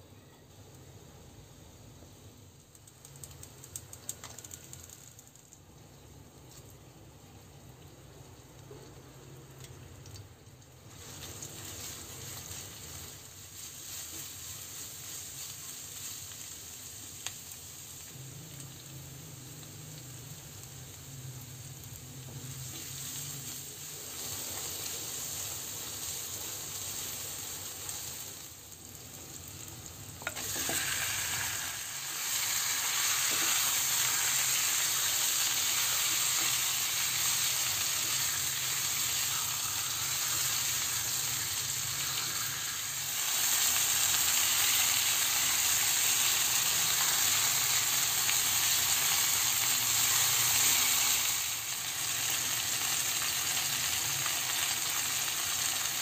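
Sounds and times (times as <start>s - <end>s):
food sizzling in hot oil: 0.7s - 56.0s.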